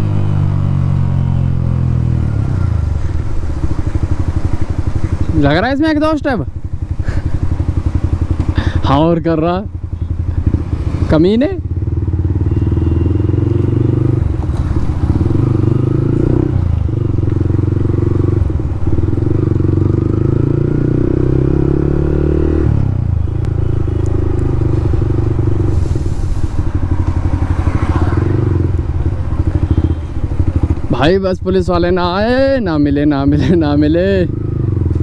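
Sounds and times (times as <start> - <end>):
loud motorcycle exhaust revving: 10.1 - 31.0, 34.2 - 35.0.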